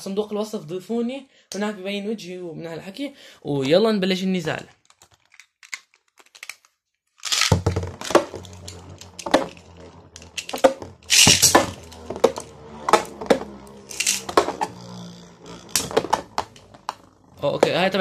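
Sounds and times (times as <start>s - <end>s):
spinning tops clacking: 7.2s - 14.7s
spinning tops launched: 7.2s - 17.2s
spinning tops whirring: 7.2s - 18.0s.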